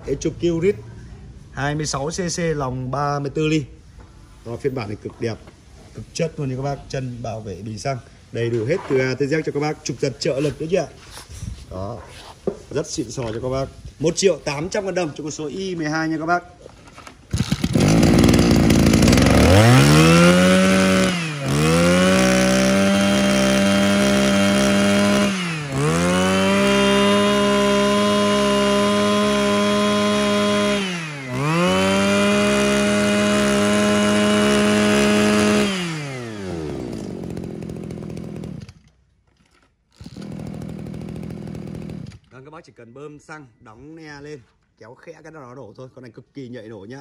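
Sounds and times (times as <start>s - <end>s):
brush cutter engine revving: 17.3s - 39.0s, 39.9s - 42.3s.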